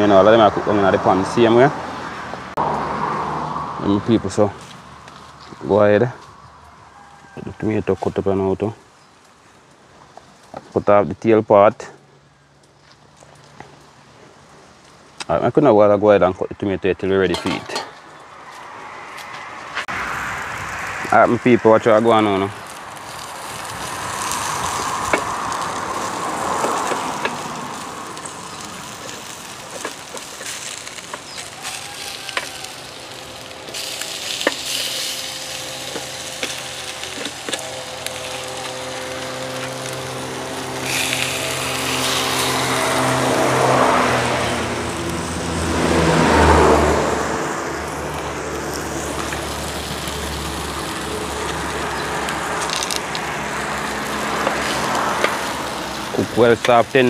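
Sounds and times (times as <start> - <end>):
food sizzling in a pan: 22.2 - 56.3
vehicle engine running: 32.7 - 57.0.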